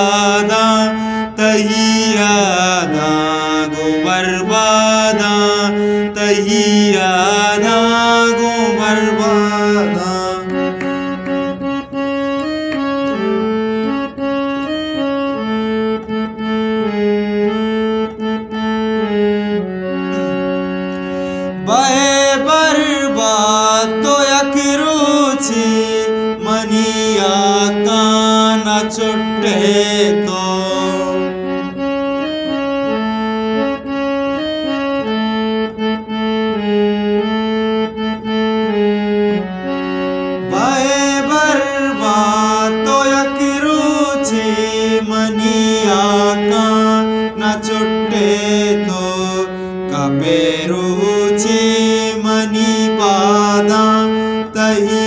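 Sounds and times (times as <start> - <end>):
man singing: 0.0 - 11.4, 21.6 - 31.6, 40.5 - 55.0
sustained keyboard accompaniment: 0.0 - 55.0.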